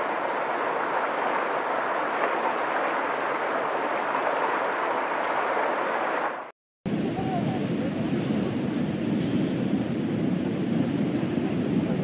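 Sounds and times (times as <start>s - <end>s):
river water rushing: 0.0s - 6.4s.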